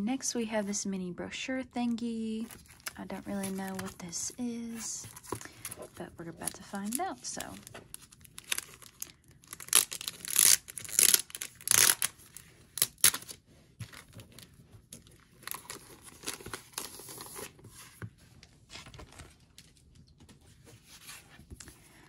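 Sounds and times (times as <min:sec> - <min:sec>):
plastic wrapping tearing and crinkling: 0:02.5 - 0:04.0, 0:04.7 - 0:17.6.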